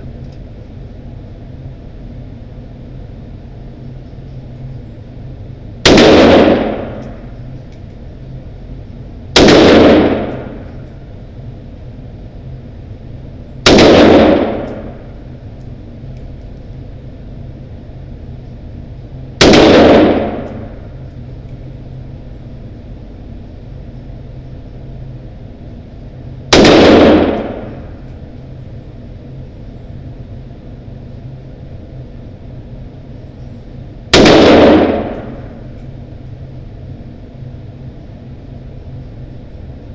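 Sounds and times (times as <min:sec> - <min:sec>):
steady low hum: 0:00.0 - 0:39.9
rifle shots echoing: 0:05.8 - 0:07.3, 0:09.4 - 0:10.7, 0:13.6 - 0:15.1, 0:19.4 - 0:20.9, 0:26.5 - 0:28.0, 0:34.1 - 0:35.6.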